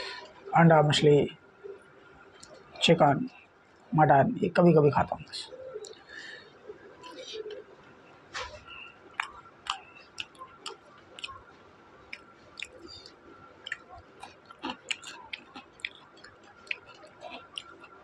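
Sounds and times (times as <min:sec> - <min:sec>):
wet chewing and mouth clicks: 0:09.1 - 0:18.0.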